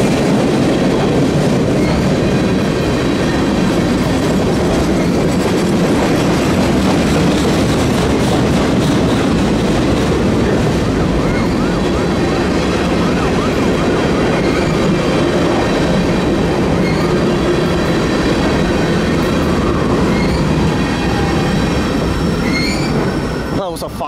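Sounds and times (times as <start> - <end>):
faint wheel squeal: 20.1 - 20.5, 22.4 - 23.6.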